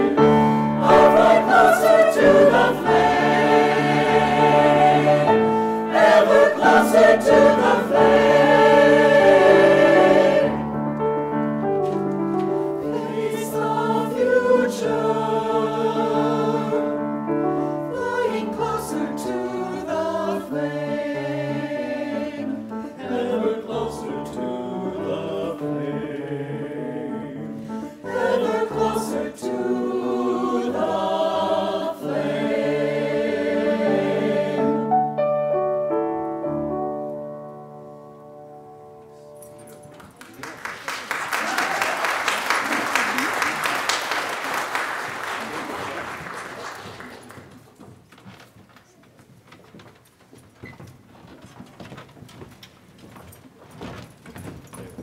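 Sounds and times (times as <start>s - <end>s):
mixed choir singing: 0.0s - 10.8s, 12.7s - 35.1s
grand piano accompaniment: 0.0s - 55.0s.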